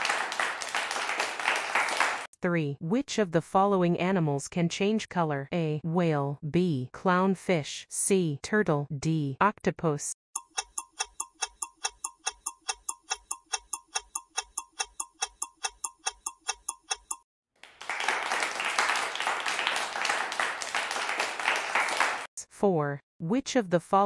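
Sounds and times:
recorded applause: 0.0 - 2.3, 17.6 - 22.3
clock ticking: 10.4 - 17.3.

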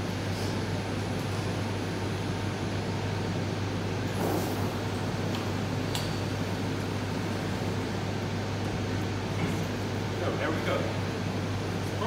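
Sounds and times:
machinery and ventilation hum: 0.0 - 12.0.

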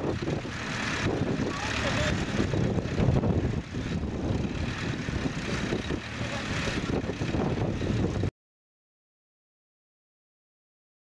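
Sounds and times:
tractor engines running: 0.0 - 8.3.

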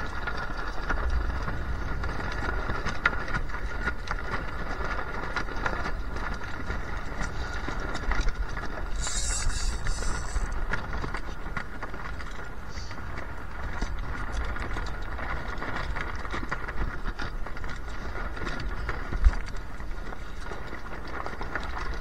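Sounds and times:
wind buffeting microphone: 0.0 - 22.0
hiss of spray: 9.0 - 10.5.

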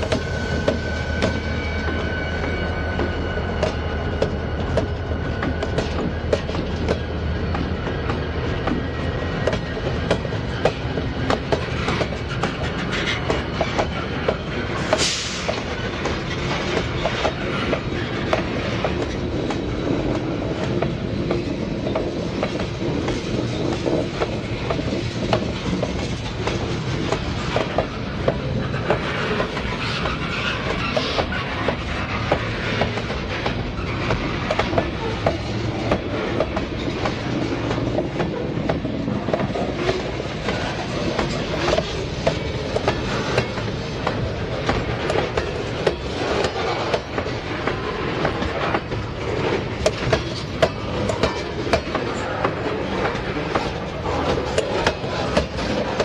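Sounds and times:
wheel squeal: 0.0 - 19.1, 27.1 - 36.0
diesel locomotive engine: 0.0 - 56.0
train wheels clacking over rail joints: 0.0 - 56.0.

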